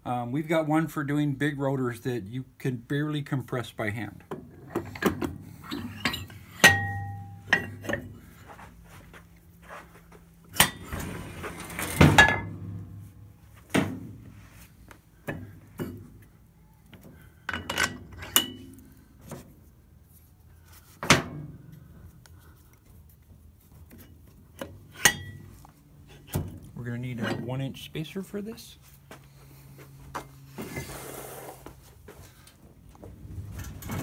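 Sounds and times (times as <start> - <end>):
metal clanks and clinks: 4.7 - 8.1, 17.5 - 18.8, 24.6 - 25.5.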